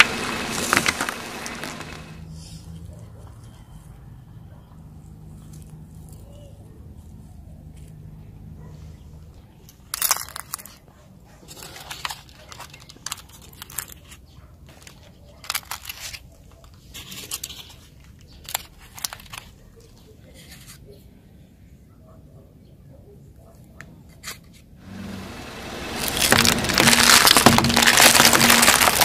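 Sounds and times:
brittle things crunching: 0.0 - 2.2, 9.6 - 20.8, 24.2 - 29.0.

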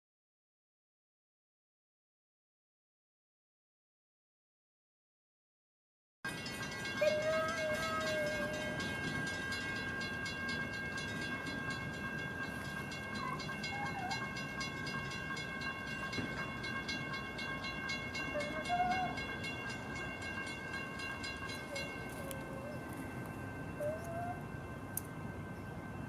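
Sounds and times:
railroad crossing bell ringing: 6.3 - 26.0.

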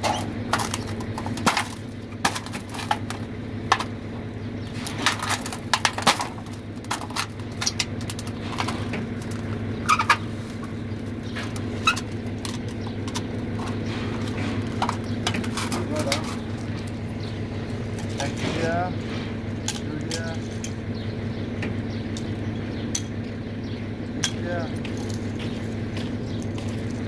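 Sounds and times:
metal squeaks: 0.0 - 0.9, 7.6 - 19.6
steady low hum: 0.0 - 27.0.

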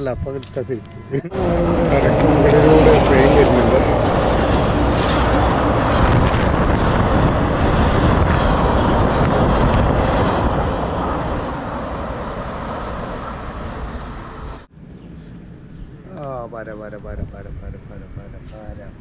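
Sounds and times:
train rolling over bridge: 1.2 - 14.7.

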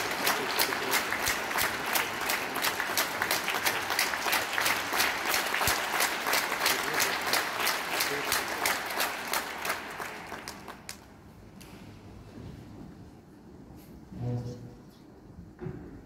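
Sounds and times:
audience applauding: 0.0 - 11.1
close person clapping: 0.0 - 11.8.

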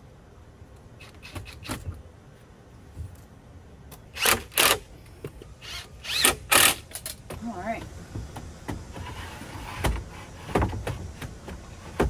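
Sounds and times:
cordless drill driving screws: 4.1 - 4.8, 5.6 - 7.0.

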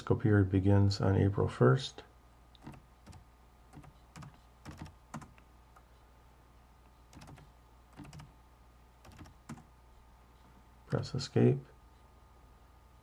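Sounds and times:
keyboard typing clicks: 2.6 - 5.4, 7.1 - 8.3, 9.0 - 9.7.

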